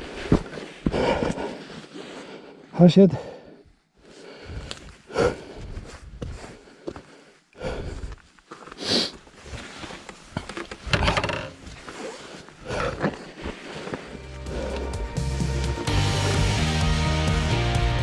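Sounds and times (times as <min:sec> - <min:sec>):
person breathing hard and grunting: 0:00.8 - 0:08.2, 0:12.0 - 0:16.4
footsteps on loose stones: 0:04.5 - 0:10.9, 0:11.6 - 0:14.8.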